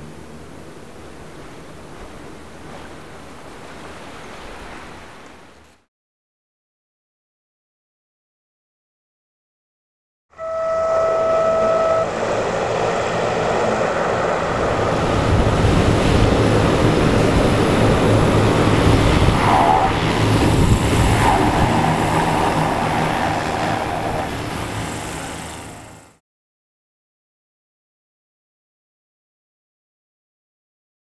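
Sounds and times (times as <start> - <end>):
steady high tone: 10.3 - 23.2
hovercraft propeller and engine: 11.2 - 26.2.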